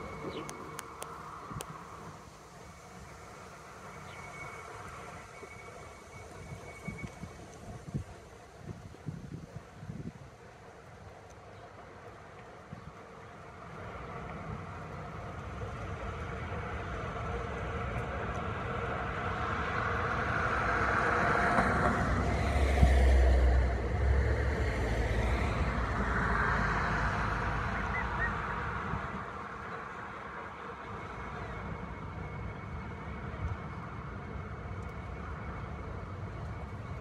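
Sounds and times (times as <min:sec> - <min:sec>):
motor vehicle passing: 0:18.7 - 0:29.4.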